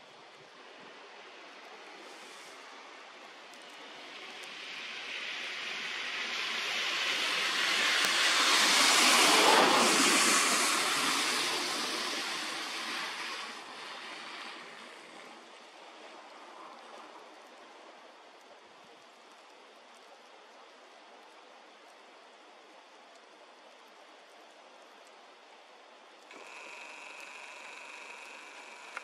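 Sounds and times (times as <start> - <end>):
vehicle tyre hiss passing: 0.6 - 17.6.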